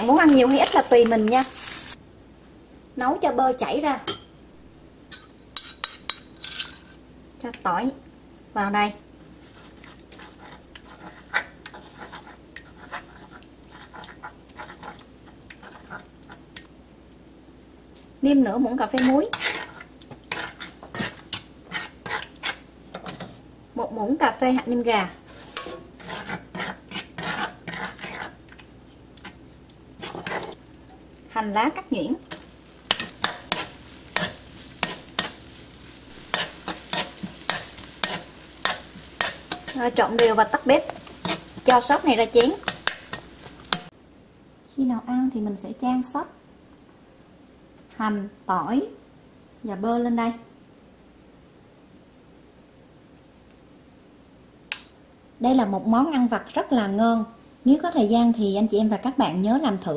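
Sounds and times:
faint sizzle: 0.0s - 59.9s
metal spoon scraping pan: 5.1s - 7.0s, 9.4s - 15.0s, 18.9s - 23.4s, 25.3s - 28.4s, 30.0s - 30.6s, 32.3s - 43.9s.

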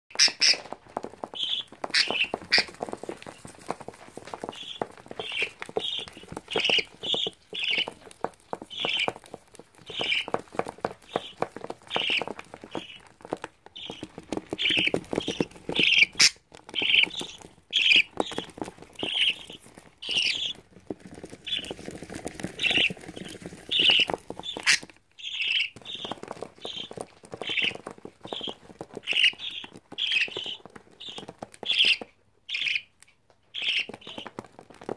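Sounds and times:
claws scratching plastic basin: 0.1s - 32.8s
budgerigars squawking: 0.2s - 0.6s.

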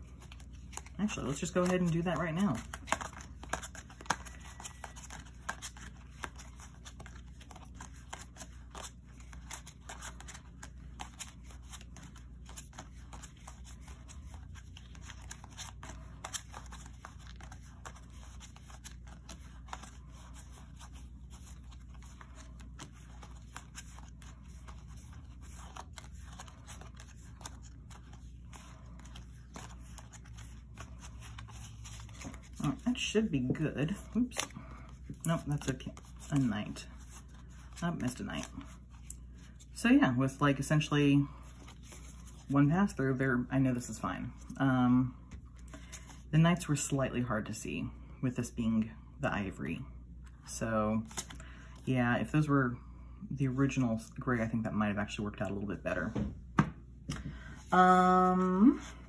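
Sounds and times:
cards clicking and sliding: 0.1s - 37.8s, 51.1s - 51.4s.

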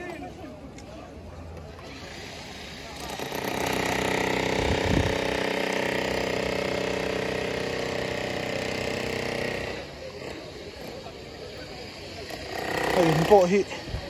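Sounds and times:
motor running steadily: 1.8s - 14.0s.

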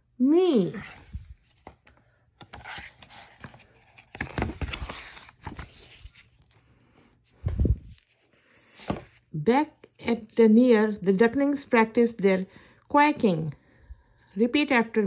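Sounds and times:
page turning paper rustle: 0.6s - 6.7s, 7.4s - 9.9s.

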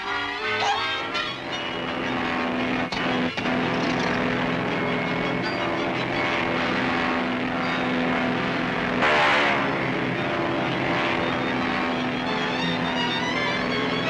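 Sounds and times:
droning held tones: 0.0s - 14.0s.

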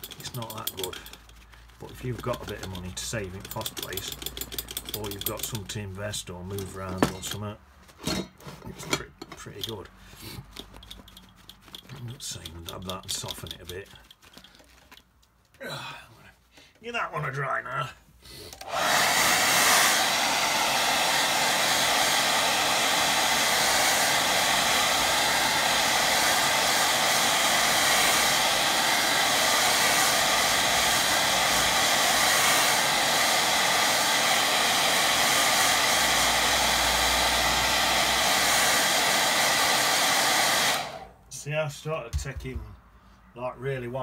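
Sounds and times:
hair dryer running: 18.5s - 41.2s.

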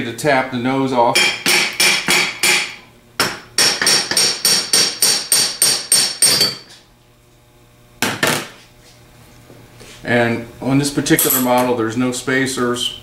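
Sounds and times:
hammer striking metal: 1.1s - 6.7s.

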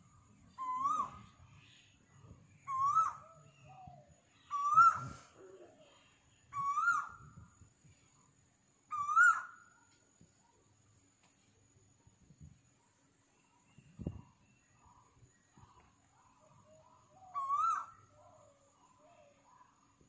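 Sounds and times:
bird calling rising whistled notes: 0.1s - 5.5s, 6.4s - 7.6s, 8.9s - 9.9s, 16.7s - 19.8s.

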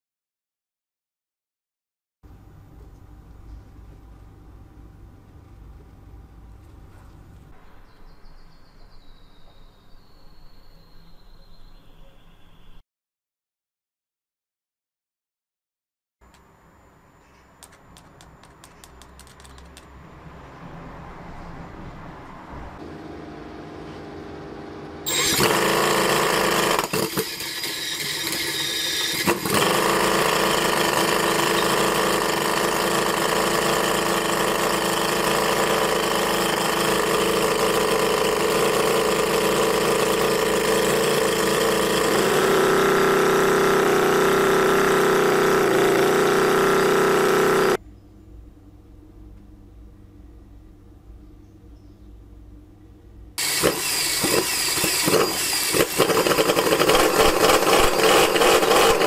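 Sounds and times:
model engine running: 25.0s - 47.8s, 53.4s - 59.0s.

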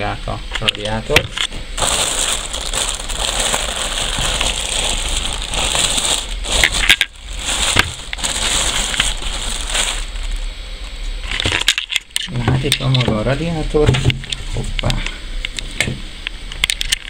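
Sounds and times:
plastic bags crinkling: 1.8s - 10.5s.

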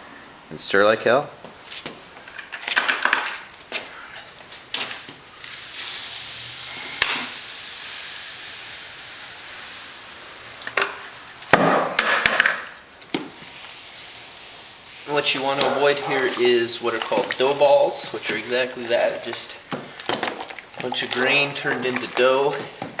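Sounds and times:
grain pouring: 12.7s - 23.0s.

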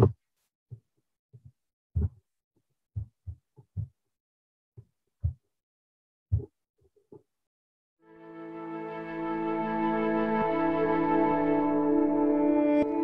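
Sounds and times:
soft low thumps and knocks: 1.4s - 2.2s, 3.0s - 4.0s, 5.2s - 5.4s, 6.3s - 6.5s.

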